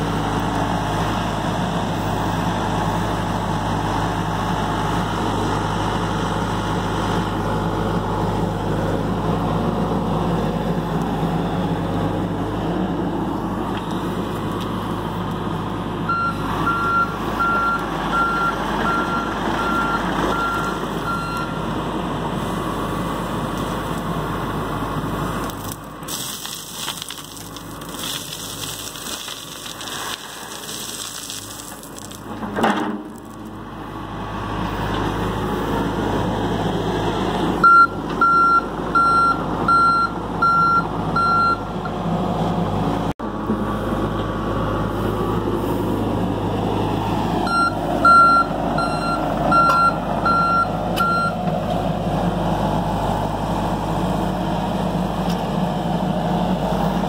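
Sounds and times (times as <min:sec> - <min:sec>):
diesel engine running: 0:00.0 - 0:57.0
travel alarm beeping: 0:16.1 - 0:21.6, 0:37.6 - 0:41.6, 0:47.5 - 0:51.4
soil rattling out of bucket: 0:25.5 - 0:33.5.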